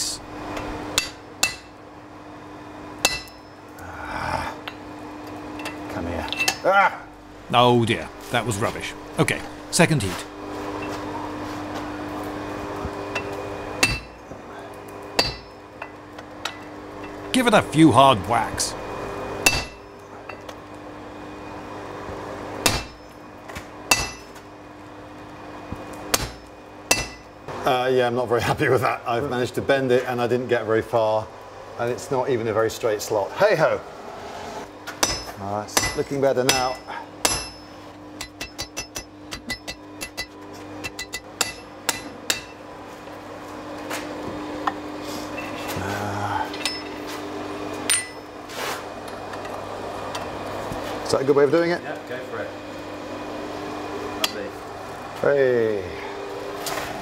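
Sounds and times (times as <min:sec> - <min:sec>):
hammer striking hot steel on anvil: 0:00.6 - 0:01.8, 0:03.0 - 0:03.7, 0:04.6 - 0:06.7, 0:13.1 - 0:14.3, 0:15.1 - 0:17.3, 0:19.4 - 0:20.6, 0:22.6 - 0:23.2, 0:23.9 - 0:24.4, 0:26.0 - 0:27.4, 0:34.9 - 0:42.7, 0:46.5 - 0:47.2, 0:47.8 - 0:48.4, 0:54.2 - 0:54.5.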